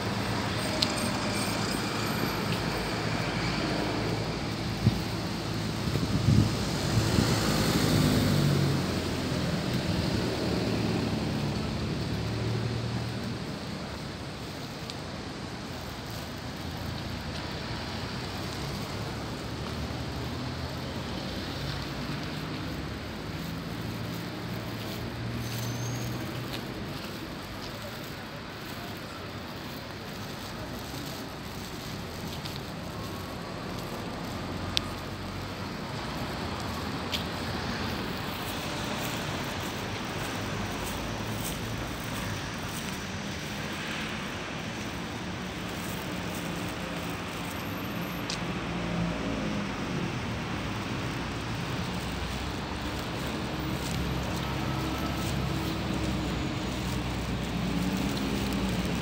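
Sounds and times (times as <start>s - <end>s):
city traffic noise: 0.0s - 59.0s.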